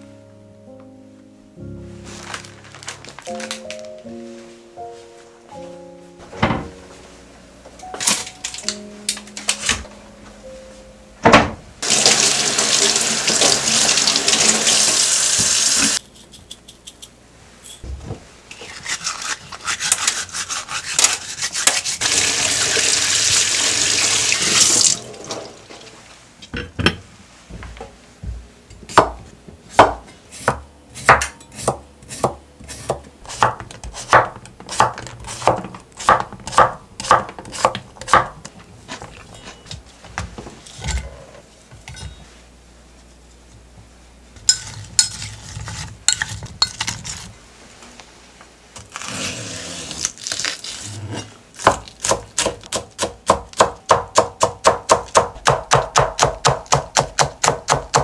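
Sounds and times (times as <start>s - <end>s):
water running into metal sink: 11.8s - 16.0s, 22.0s - 26.0s
knife chopping on cutting board: 28.9s - 38.4s, 51.6s - 58.0s.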